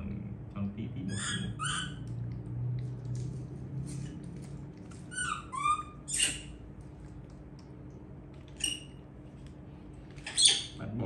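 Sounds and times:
baby monkey squeaking: 1.1s - 2.1s, 5.0s - 6.6s, 8.6s - 9.0s, 10.2s - 10.8s.

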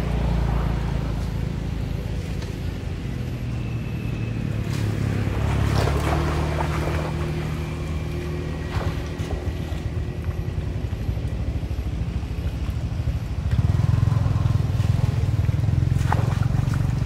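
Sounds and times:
low engine hum: 0.0s - 17.0s
monkeys splashing through water: 4.3s - 10.6s, 12.6s - 17.0s.

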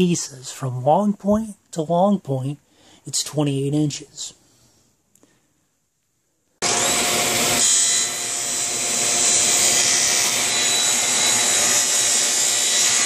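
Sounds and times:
table saw whining: 6.6s - 13.0s.

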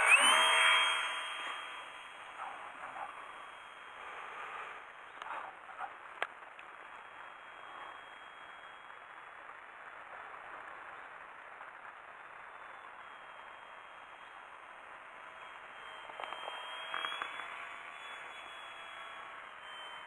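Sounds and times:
model aeroplane motor whirring: 0.0s - 8.9s, 13.0s - 20.0s.

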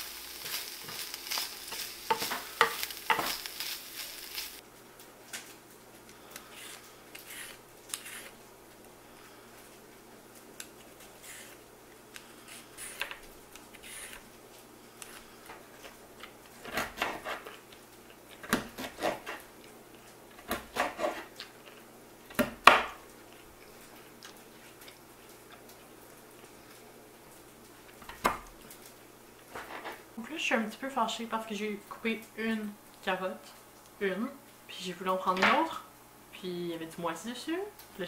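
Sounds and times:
peeler scraping carrot: 6.4s - 8.4s, 11.2s - 11.6s, 12.4s - 13.1s, 13.7s - 14.2s.

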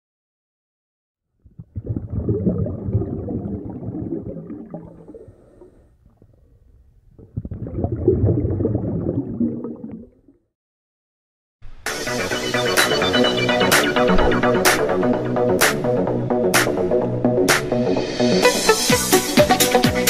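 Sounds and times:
underwater bubbling: 1.4s - 10.5s.

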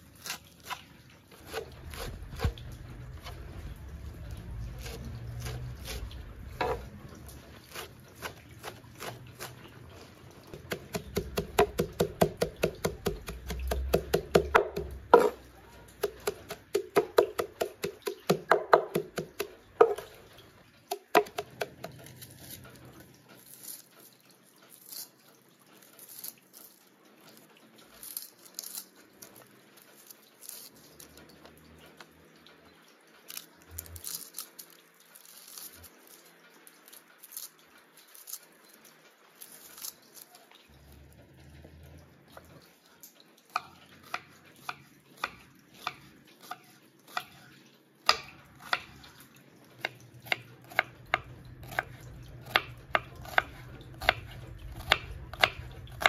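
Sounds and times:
onion skin crackling: 0.0s - 32.1s, 33.3s - 41.1s, 43.5s - 56.0s
cleaver chopping on wooden board: 10.6s - 15.4s, 16.0s - 20.0s.

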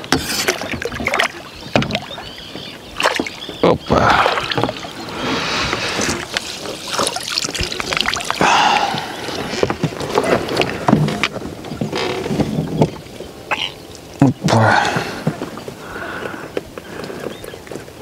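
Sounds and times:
water splashing beside a boat: 0.0s - 18.0s
fish thrashing at the surface: 5.9s - 10.7s.

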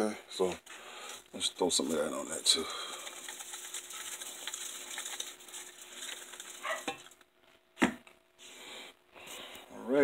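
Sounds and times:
spice shaker rattling: 1.8s - 7.2s.

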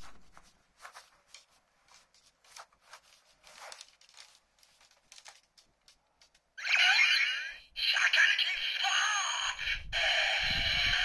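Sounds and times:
clothing rustle: 0.0s - 6.5s.

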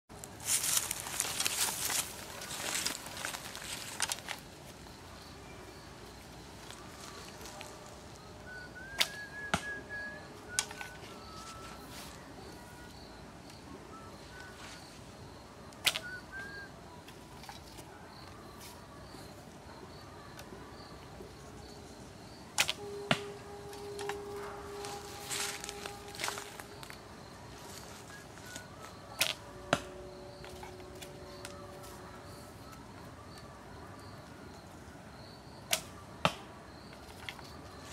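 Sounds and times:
bow string snapping: 15.8s - 16.2s, 22.6s - 24.2s.

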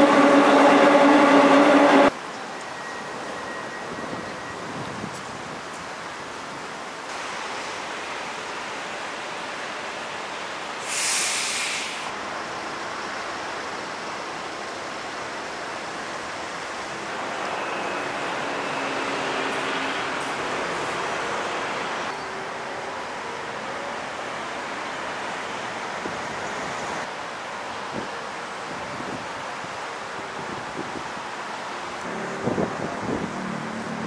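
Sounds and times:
shallow stream rushing: 5.4s - 34.0s
brief hiss: 10.7s - 12.1s.

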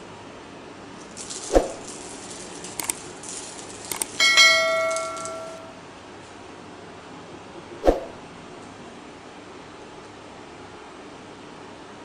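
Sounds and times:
whoosh: 1.5s - 1.9s, 7.8s - 8.2s
bright bell chime: 4.2s - 5.8s.

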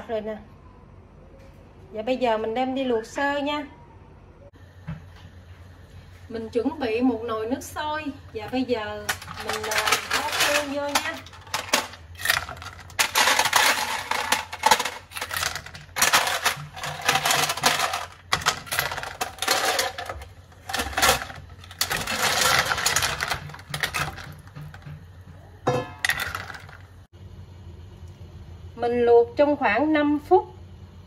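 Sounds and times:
snail shells clattering in metal bowl: 8.8s - 24.9s, 25.7s - 27.0s
ladle scraping shells: 9.0s - 24.8s, 26.0s - 27.0s.

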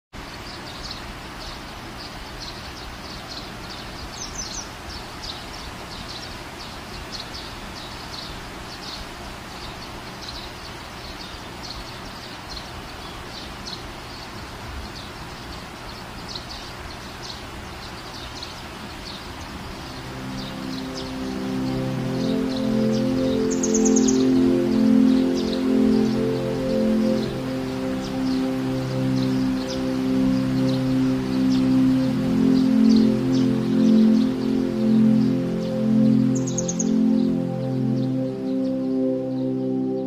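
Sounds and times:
high bird chirps: 18.0s - 39.6s
music: 19.8s - 40.0s.

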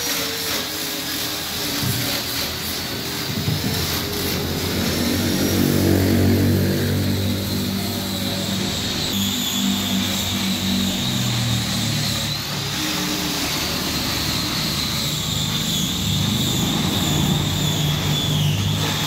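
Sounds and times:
workshop machine whine and hum: 0.0s - 19.0s.

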